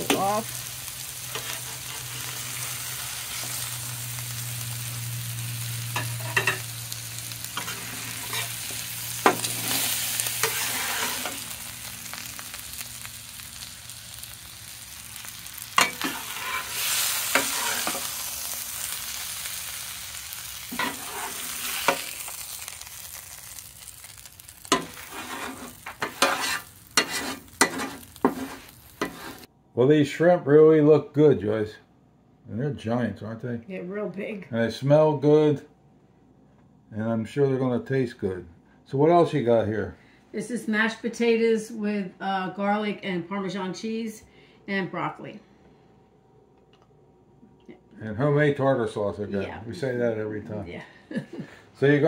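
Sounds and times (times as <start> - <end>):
shrimp sizzling on a griddle: 0.0 - 29.5
metal spatula scraping griddle: 1.2 - 3.7, 5.9 - 6.7, 7.5 - 11.6, 15.5 - 18.2, 20.7 - 22.6, 24.1 - 29.5.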